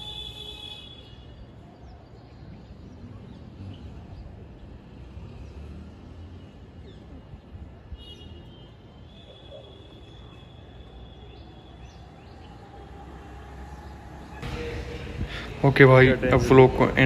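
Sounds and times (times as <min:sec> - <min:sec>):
low steady city rumble: 0:00.0 - 0:17.0.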